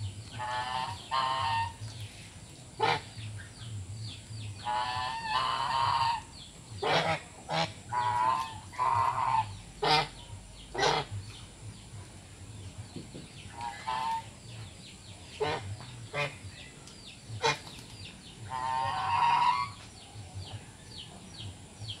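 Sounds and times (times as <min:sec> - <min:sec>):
geese honking: 0:00.3 - 0:02.0, 0:02.8 - 0:03.3, 0:04.6 - 0:11.4, 0:13.5 - 0:14.5, 0:15.3 - 0:16.7, 0:17.4 - 0:17.7, 0:18.4 - 0:19.9.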